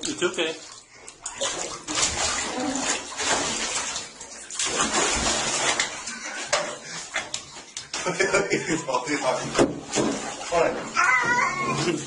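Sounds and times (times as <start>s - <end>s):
tap water running and splashing: 0.0s - 12.0s.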